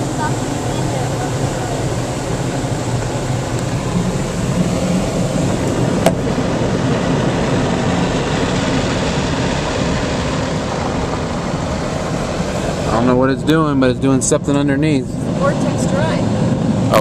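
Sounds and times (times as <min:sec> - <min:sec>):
car wash machinery running: 0:00.0 - 0:17.0
constant low hum: 0:00.0 - 0:17.0.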